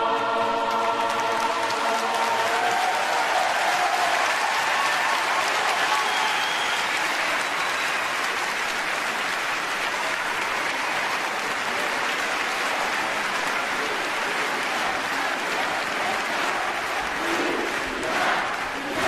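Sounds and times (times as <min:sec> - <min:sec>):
audience applauding: 0:00.5 - 0:19.0.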